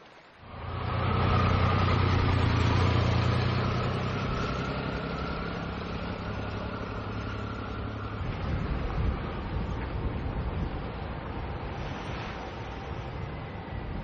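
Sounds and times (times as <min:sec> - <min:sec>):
rushing wind-like noise: 0:00.0 - 0:14.0
motorcycle engine pulling away: 0:00.5 - 0:09.8.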